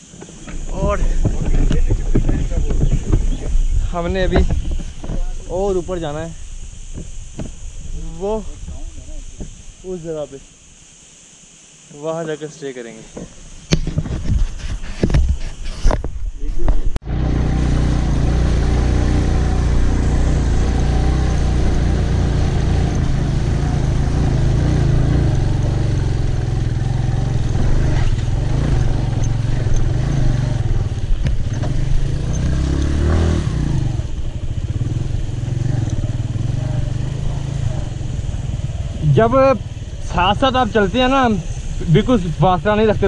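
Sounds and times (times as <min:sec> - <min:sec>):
motorcycle engine running: 0:00.0 - 0:10.4, 0:17.0 - 0:43.0
sharp knocks from bumps: 0:00.2 - 0:05.4, 0:13.1 - 0:16.2.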